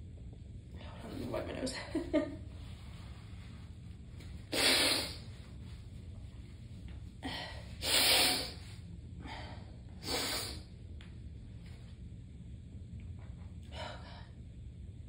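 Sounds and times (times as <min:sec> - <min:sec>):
person sneezing: 0:04.5 - 0:05.2, 0:07.8 - 0:08.6, 0:10.0 - 0:10.6.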